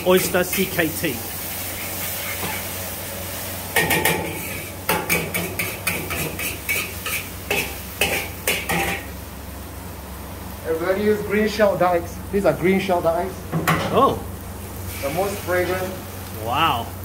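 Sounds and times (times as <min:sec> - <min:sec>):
metal spatula clanging on wok: 0:03.8 - 0:09.1.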